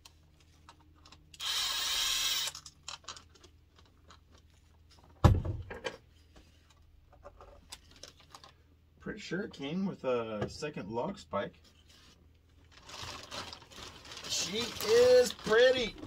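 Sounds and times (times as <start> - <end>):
cordless driver spinning: 1.4 - 2.7.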